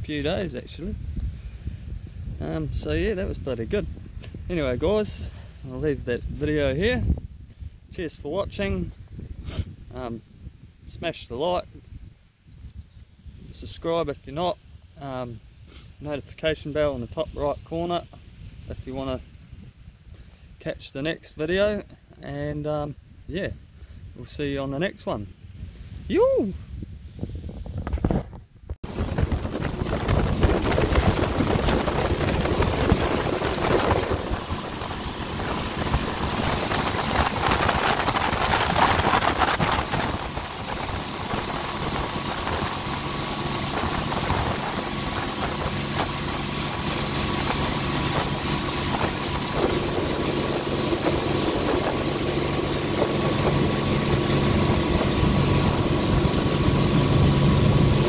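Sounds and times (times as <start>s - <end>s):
wind on microphone: 0.0s - 20.6s, 21.2s - 58.0s
boat engine humming: 28.8s - 58.0s.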